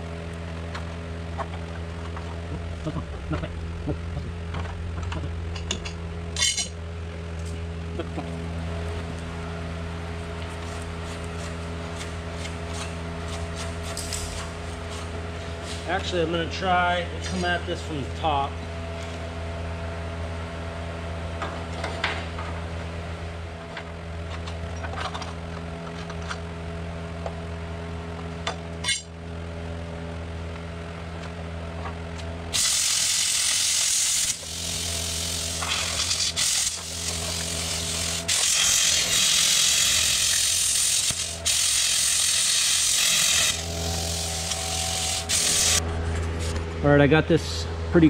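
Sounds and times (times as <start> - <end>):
steady mechanical hum: 0.0 - 48.0
angle grinder cutting steel: 32.6 - 45.8.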